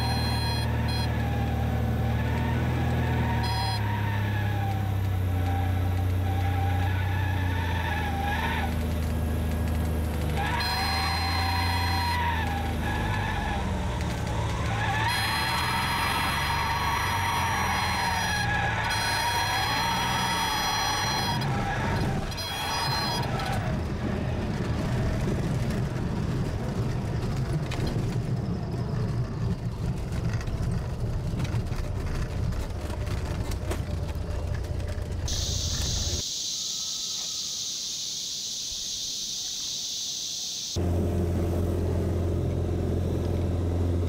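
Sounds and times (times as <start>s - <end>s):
plane engine and propeller: 20.6s - 36.4s
high insect buzz: 35.3s - 40.8s.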